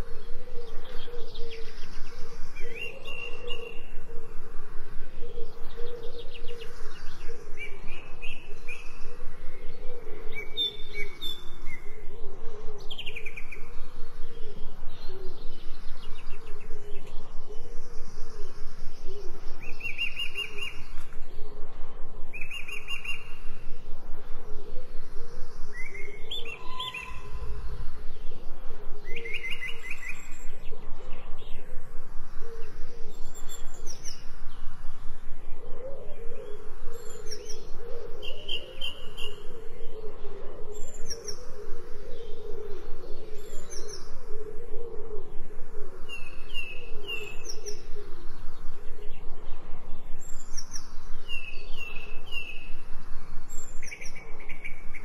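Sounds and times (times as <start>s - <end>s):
steady low background: 0.0s - 26.6s, 27.2s - 55.0s
songbirds chirping and singing: 0.0s - 55.0s.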